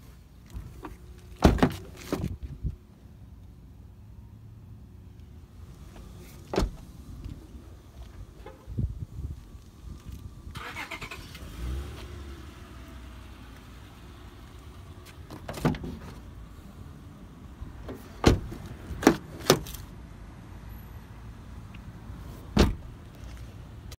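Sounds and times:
car door latch clicks: 22.6 - 22.9.

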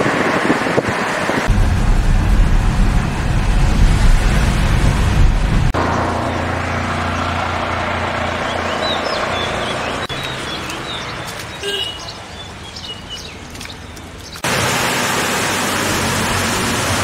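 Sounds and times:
birds chirping: 5.8 - 14.5
waterfall rushing: 14.4 - 17.0.

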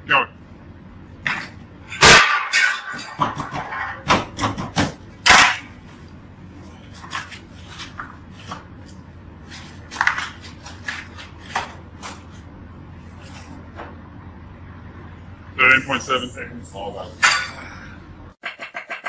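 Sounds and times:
cardboard boxes folded and stacked: 6.6 - 14.0
pizza cutter chopping: 9.5 - 12.3, 18.4 - 19.0.

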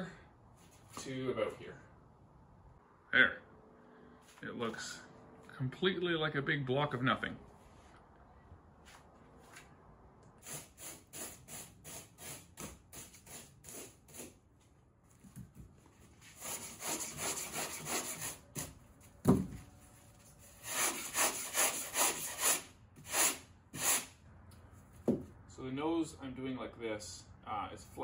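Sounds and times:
sanding block rubbing styrofoam: 10.4 - 14.4, 16.3 - 18.7, 20.4 - 24.1.

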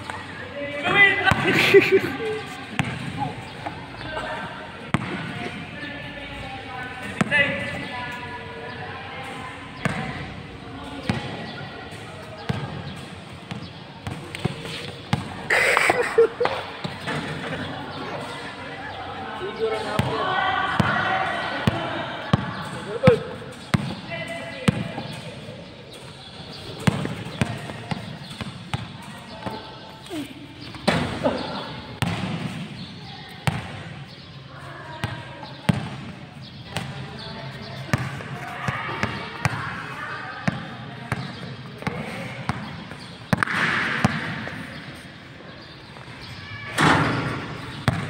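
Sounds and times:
basketball bouncing on court floor: 2.7 - 3.8, 4.9 - 5.6, 11.0 - 15.4, 19.9 - 26.0, 26.6 - 29.7, 30.6 - 32.8, 33.4 - 34.0, 35.0 - 37.0, 37.8 - 39.7, 40.4 - 44.6, 46.8 - 48.0.

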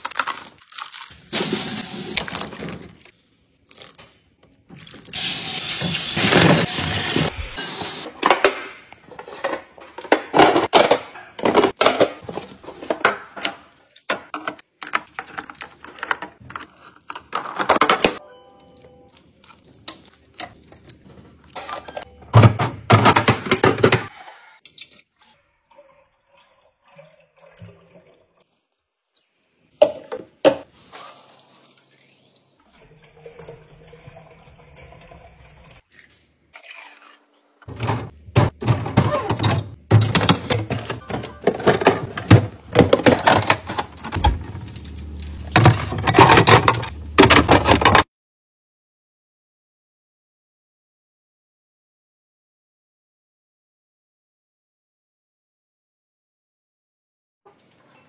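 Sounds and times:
plastic packaging clattering and crinkling: 0.0 - 3.1, 37.7 - 48.1
plastic drawers sliding and clicking: 37.7 - 44.7, 45.4 - 48.1.

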